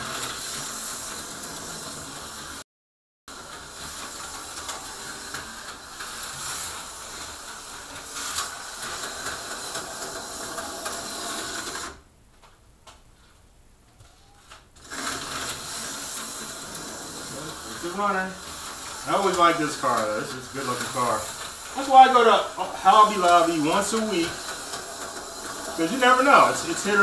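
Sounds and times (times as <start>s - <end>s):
slot car chattering on rails: 3.4s - 12.0s, 14.8s - 27.0s
small electric motor whirring: 14.8s - 22.2s.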